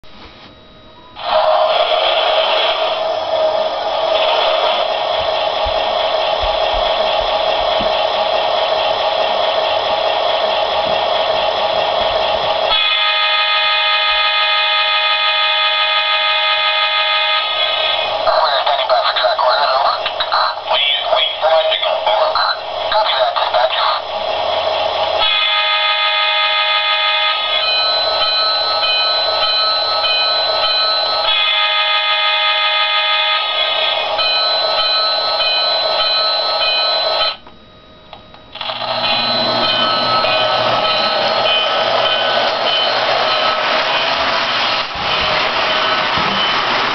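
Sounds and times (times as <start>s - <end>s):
electronic locomotive sounds from speaker: 1.0s - 46.9s.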